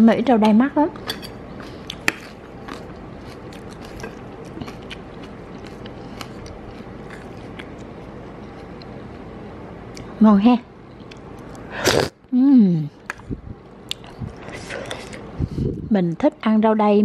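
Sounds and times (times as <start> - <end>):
person chewing food: 1.0 - 9.3, 10.9 - 12.1, 13.0 - 15.4.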